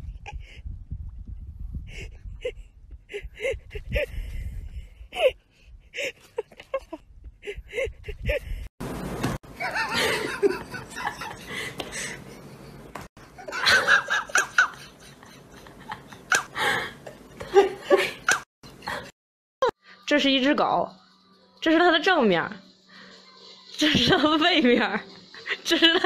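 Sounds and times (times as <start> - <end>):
person laughing: 6.0 - 8.6, 9.6 - 12.2, 13.4 - 19.1, 25.4 - 26.0.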